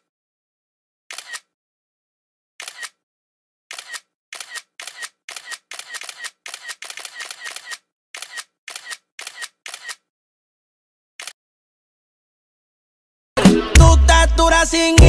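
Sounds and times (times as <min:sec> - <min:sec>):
camera shutter clicks: 0:01.1 - 0:01.5, 0:02.6 - 0:03.0, 0:03.7 - 0:10.1.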